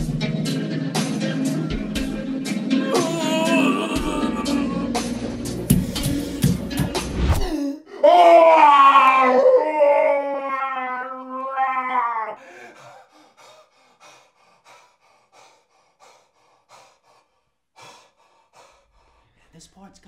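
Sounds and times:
man sobbing and gasping: 0:02.7 - 0:05.3, 0:07.4 - 0:10.0, 0:12.3 - 0:13.8
man wailing: 0:02.8 - 0:05.3, 0:07.5 - 0:12.4.

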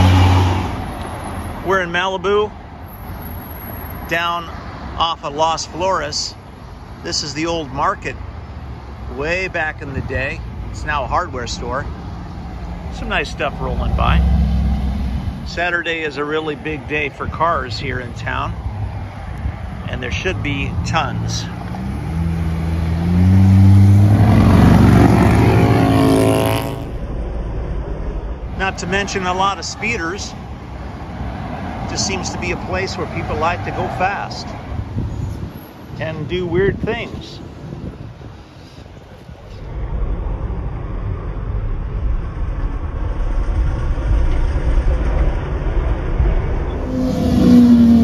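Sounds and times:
car passing close by: 0:00.0 - 0:01.6, 0:18.6 - 0:35.7, 0:39.6 - 0:48.0
traffic noise: 0:00.0 - 0:48.0.

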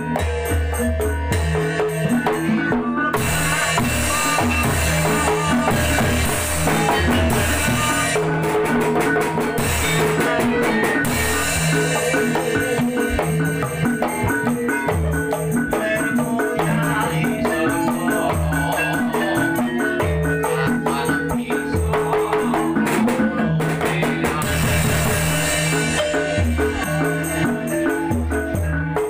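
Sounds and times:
hand drums: 0:00.0 - 0:29.0
ringing gongs: 0:24.4 - 0:28.1.

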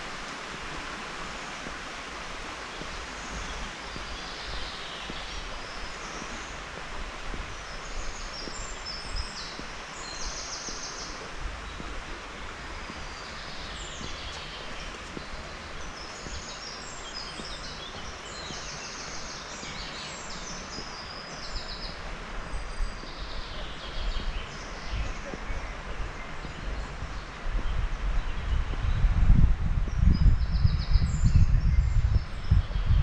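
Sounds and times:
steady outdoor hiss: 0:00.0 - 0:33.0
songbirds trilling: 0:07.6 - 0:28.6.

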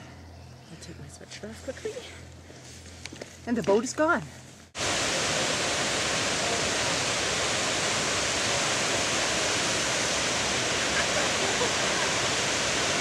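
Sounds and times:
waterfall rushing: 0:04.8 - 0:13.0.

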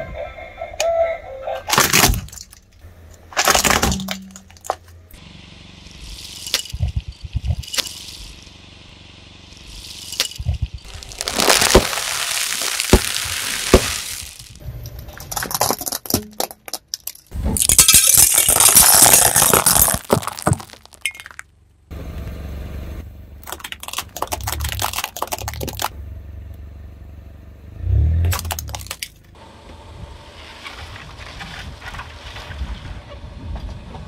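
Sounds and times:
car rumbling: 0:00.0 - 0:34.0
tyres crushing objects: 0:01.7 - 0:05.0, 0:09.6 - 0:21.5, 0:23.4 - 0:25.9, 0:28.3 - 0:29.2
loud hiss: 0:10.9 - 0:14.6.

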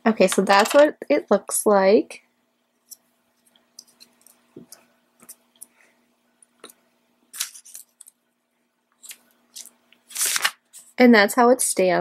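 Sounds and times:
paper rustling: 0:07.4 - 0:08.1, 0:09.0 - 0:11.0.

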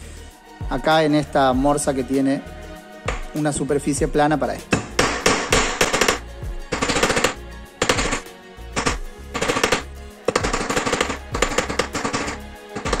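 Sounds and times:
hammer striking steel wire: 0:03.1 - 0:03.4, 0:04.7 - 0:13.0.

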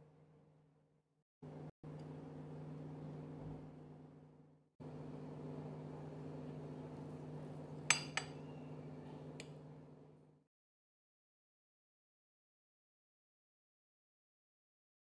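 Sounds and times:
fork clinking on porcelain plate: 0:07.8 - 0:08.5.

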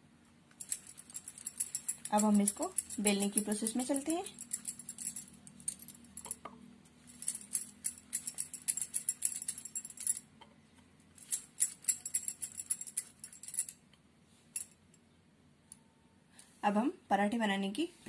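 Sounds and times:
jingling clinks from hands: 0:00.6 - 0:06.4, 0:07.0 - 0:10.2, 0:11.2 - 0:13.8.

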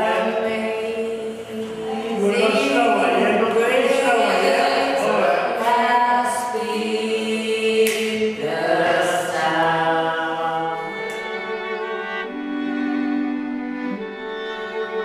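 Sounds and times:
voices chanting together: 0:00.0 - 0:11.1
hand claps: 0:07.8 - 0:08.2.

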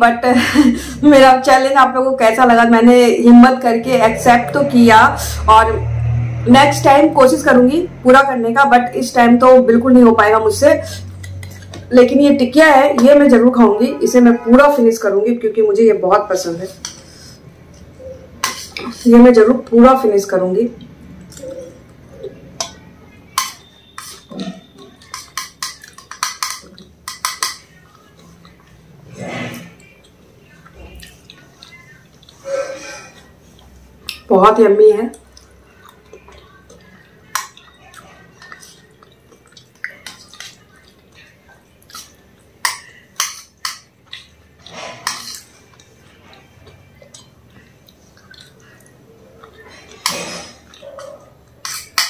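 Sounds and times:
metal spoon scraping steel tray: 0:23.3 - 0:27.6, 0:44.7 - 0:45.5.

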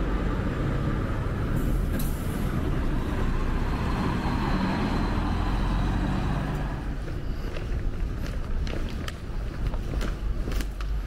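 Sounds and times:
coach driving away: 0:00.0 - 0:07.8
street noise: 0:00.0 - 0:11.0.

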